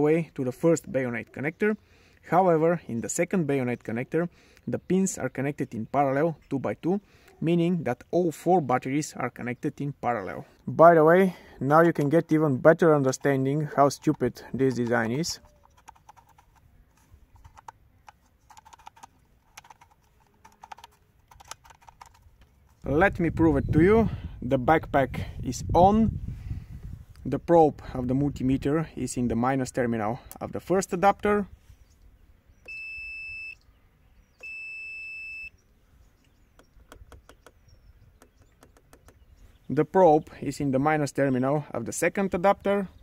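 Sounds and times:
small hard objects clicking: 0:13.1 - 0:16.6, 0:17.3 - 0:22.9
multimeter beeping: 0:32.6 - 0:33.6, 0:34.4 - 0:35.6.

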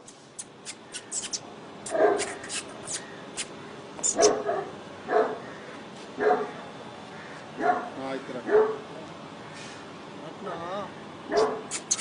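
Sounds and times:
large dog barking: 0:01.9 - 0:02.3, 0:04.2 - 0:05.5, 0:06.2 - 0:06.6, 0:07.6 - 0:08.9, 0:11.3 - 0:11.7
short sharp clicks: 0:11.7 - 0:12.0.

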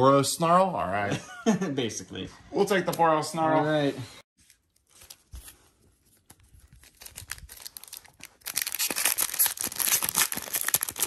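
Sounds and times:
foil wrapper crinkling and tearing: 0:04.4 - 0:11.0.

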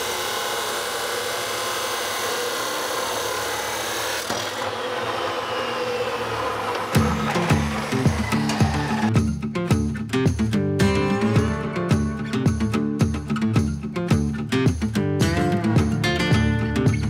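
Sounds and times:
saw motor whine spinning down: 0:00.0 - 0:09.1
chop saw grinding steel: 0:00.0 - 0:09.2
music with a beat: 0:07.0 - 0:17.0.

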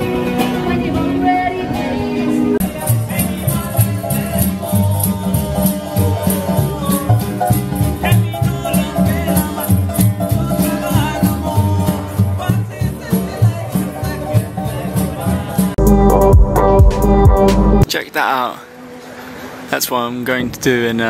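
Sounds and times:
bass line: 0:00.0 - 0:17.9
strummed acoustic guitars: 0:00.0 - 0:17.9
shaker rattle: 0:02.6 - 0:11.2.

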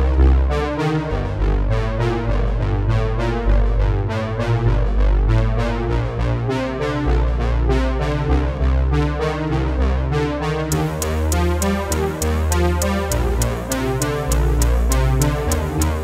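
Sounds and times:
upbeat electronic keyboard music: 0:10.7 - 0:16.0.

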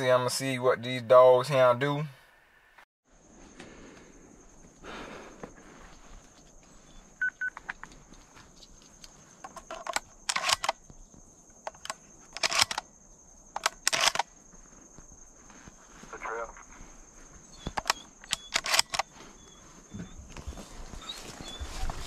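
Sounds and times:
rustling bursts: 0:18.5 - 0:22.0.

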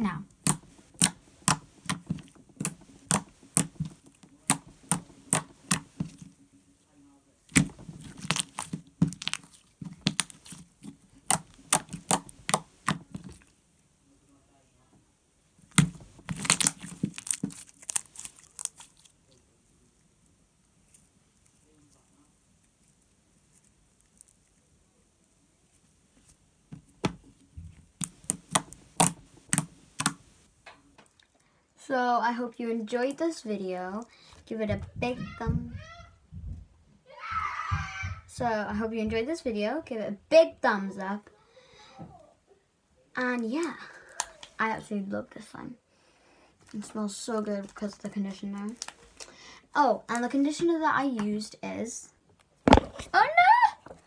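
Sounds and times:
slime squished with fingers: 0:00.3 - 0:06.4, 0:07.5 - 0:13.6, 0:15.6 - 0:19.2, 0:28.0 - 0:30.2.

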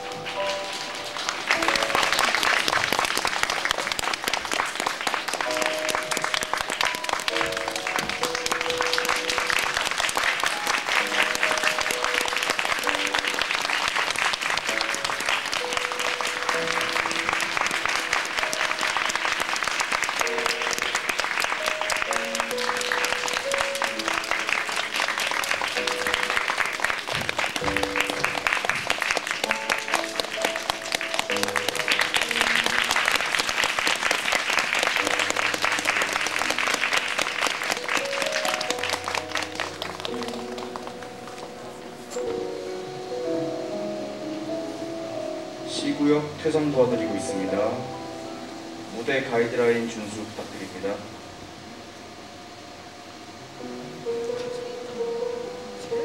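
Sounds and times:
music with slow held notes: 0:00.0 - 0:03.6, 0:05.2 - 0:56.0
audience clapping: 0:00.0 - 0:42.6.

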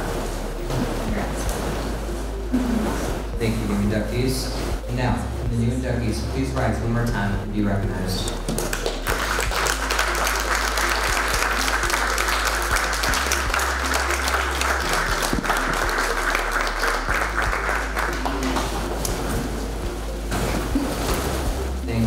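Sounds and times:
audience applauding: 0:08.6 - 0:19.2.

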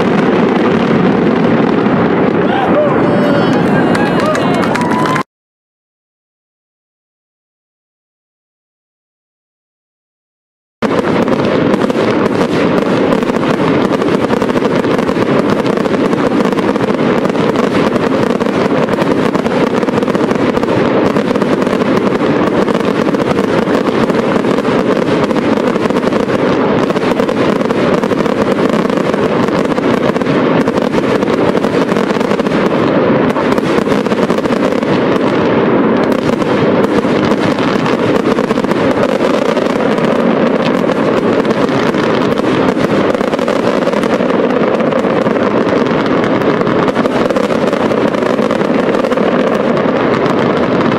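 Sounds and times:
fireworks barrage: 0:00.0 - 0:05.3, 0:10.8 - 0:50.9.

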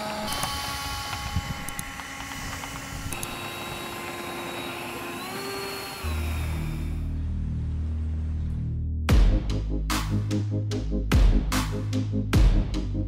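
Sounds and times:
electric ducted fans whining: 0:00.0 - 0:08.3.

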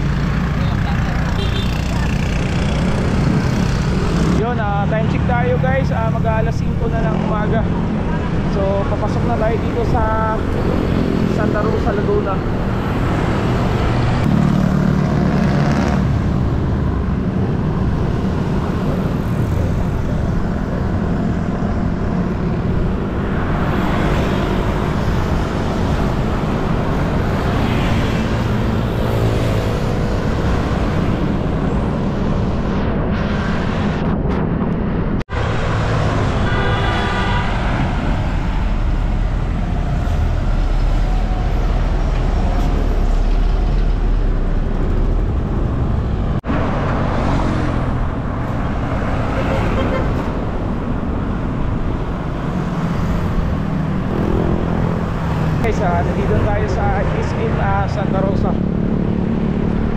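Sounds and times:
cars and trucks passing: 0:00.0 - 0:59.9
low road rumble: 0:00.0 - 0:59.9.

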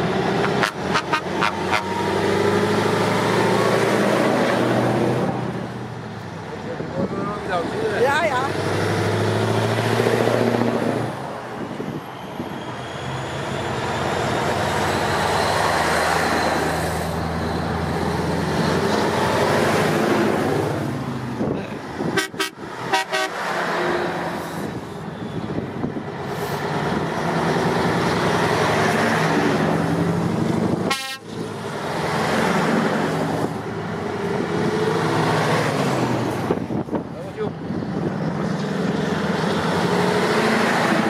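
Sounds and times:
trucks driving past: 0:00.0 - 0:41.0
truck horns tooting: 0:00.4 - 0:02.6, 0:22.0 - 0:23.5, 0:30.8 - 0:31.4.

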